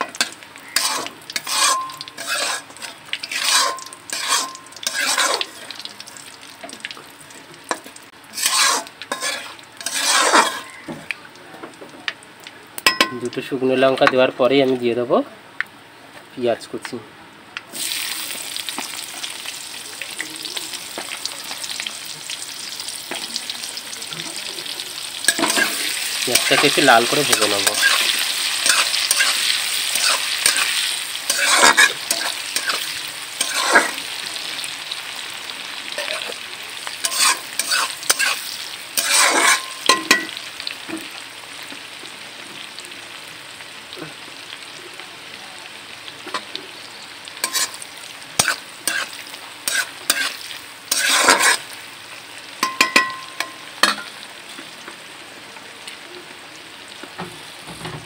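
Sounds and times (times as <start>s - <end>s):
onions sizzling in hot oil: 0.0s - 58.0s
spatula scraping a pan: 0.2s - 5.7s, 7.7s - 10.8s, 25.3s - 34.1s, 37.0s - 40.0s, 47.4s - 47.8s, 48.4s - 51.7s.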